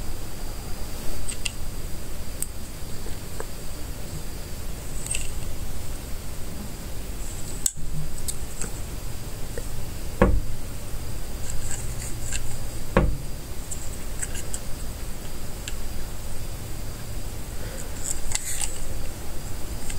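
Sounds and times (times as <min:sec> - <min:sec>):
loud knocks: 0:10.2 - 0:10.6, 0:12.9 - 0:13.4.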